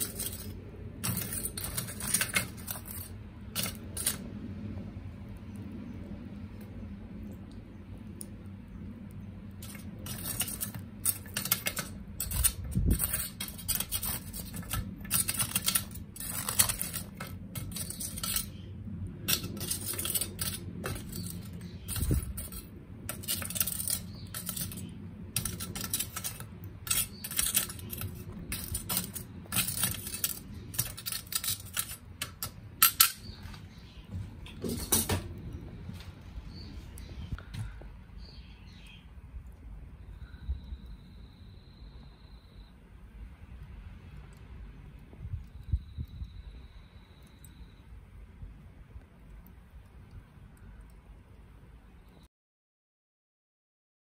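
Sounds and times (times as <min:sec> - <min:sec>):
charcoal clinking and crackling: 0:00.0 - 0:04.3, 0:09.6 - 0:33.7, 0:34.4 - 0:35.6.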